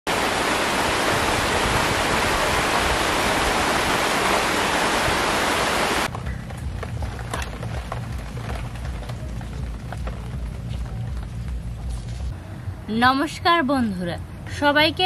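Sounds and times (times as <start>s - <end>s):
heavy rain on foliage: 0.1s - 6.1s.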